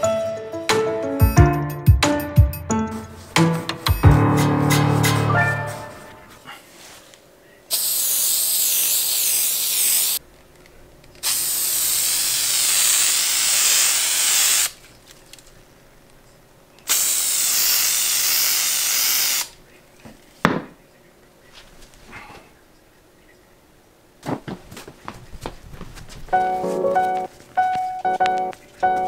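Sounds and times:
hissing spray: 7.7 - 10.2, 11.2 - 14.8, 16.9 - 19.5.

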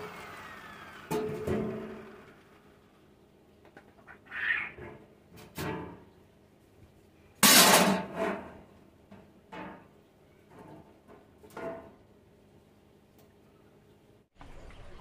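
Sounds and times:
metal on metal clatter: 7.4 - 12.0.

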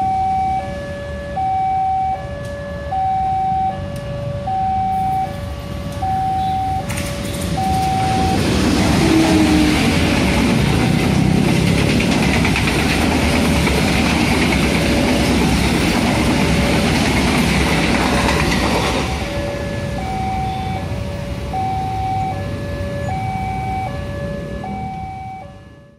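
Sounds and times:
level crossing alarm: 0.0 - 10.2, 17.7 - 25.9
train rushing past: 5.1 - 25.0.

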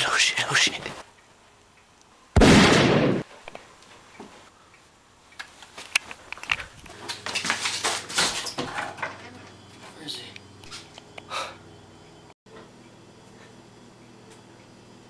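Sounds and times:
gunshot bang: 2.4 - 3.2.

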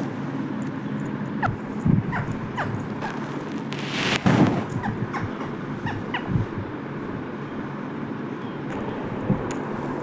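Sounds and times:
parakeet chirping: 1.4 - 3.3, 4.8 - 6.5
rustling burst: 3.0 - 4.8.

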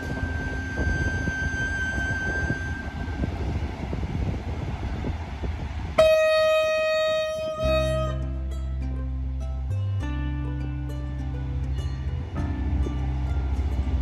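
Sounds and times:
locomotive horn blast: 0.0 - 3.4, 6.0 - 8.6
train rumbling: 0.0 - 10.2, 11.5 - 14.0
background music: 6.4 - 14.0.

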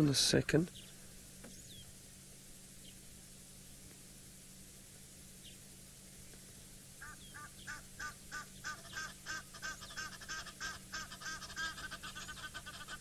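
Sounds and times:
goose honking: 7.0 - 13.0.

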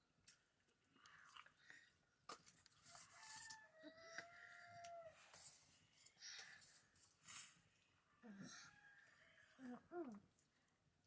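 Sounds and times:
faint rooster crowing: 2.9 - 5.3, 8.1 - 9.8.

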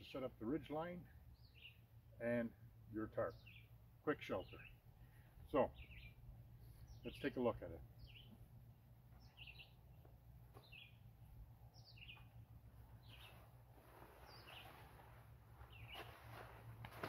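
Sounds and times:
small bird chirping: 1.3 - 1.8, 5.6 - 7.3, 7.9 - 8.5, 9.1 - 11.1, 11.7 - 16.4
nylon tarp rustling: 13.2 - 17.0.

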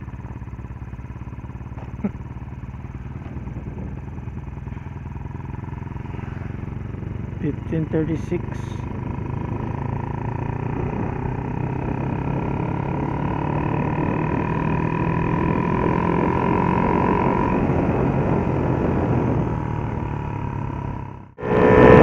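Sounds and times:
motorcycle engine running hard: 0.0 - 22.0
wind rushing over microphone: 3.1 - 5.1, 8.8 - 22.0
high whine: 21.4 - 22.0.

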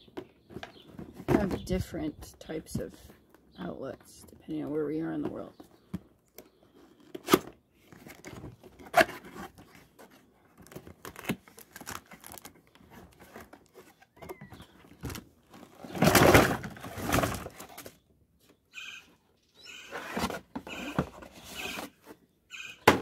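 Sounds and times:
plastic rustling and crinkling: 7.8 - 18.0.

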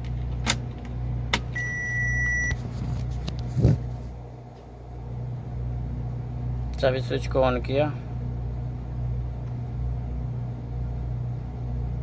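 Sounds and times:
steady low hum: 0.0 - 12.0
dashboard high beep: 1.6 - 2.6.

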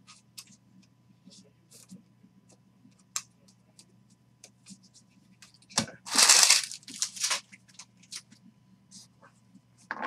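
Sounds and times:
cards rustling against each other: 5.4 - 8.3.

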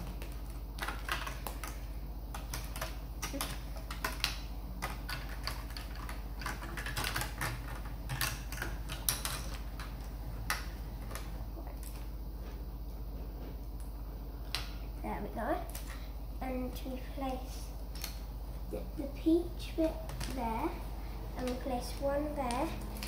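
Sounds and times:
plastic bricks clicking: 0.0 - 12.0.

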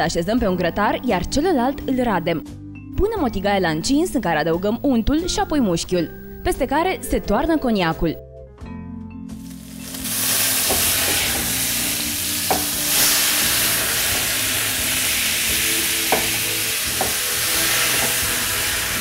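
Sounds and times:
meat sizzling in a pan: 9.4 - 19.0.

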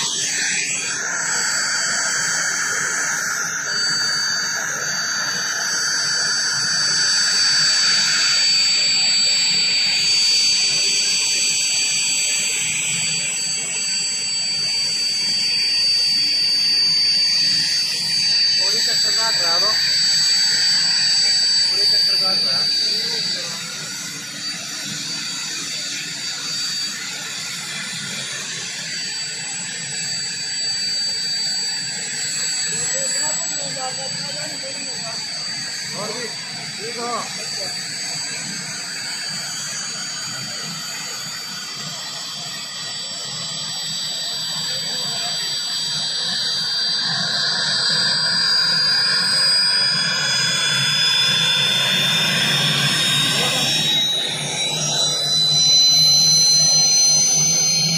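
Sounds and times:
helicopter engine and rotors: 0.0 - 57.9.

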